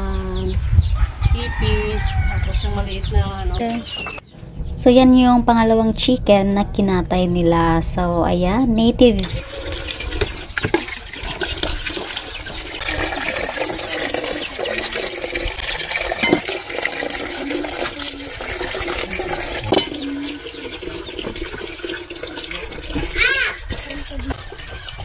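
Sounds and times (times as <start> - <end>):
water splashing and sloshing: 9.0 - 25.0.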